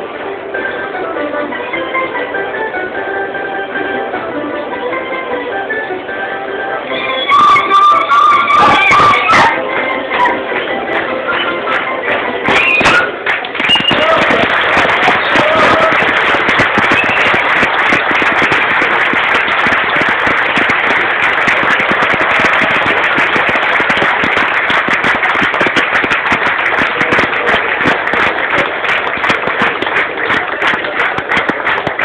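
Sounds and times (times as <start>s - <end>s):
crowd applauding: 6.9s - 32.0s.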